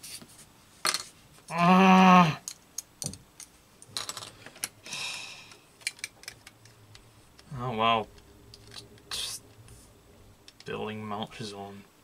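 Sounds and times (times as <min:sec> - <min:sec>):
plastic model parts clicking: 0:05.8 - 0:07.5
wordless vocal sound: 0:09.0 - 0:09.9.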